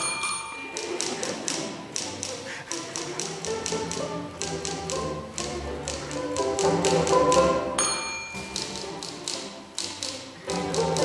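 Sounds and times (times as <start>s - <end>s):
typewriter bell ding: 0.0s - 1.0s, 7.8s - 8.7s
string orchestra music: 0.6s - 11.0s
typewriter keys clacking: 8.2s - 11.0s.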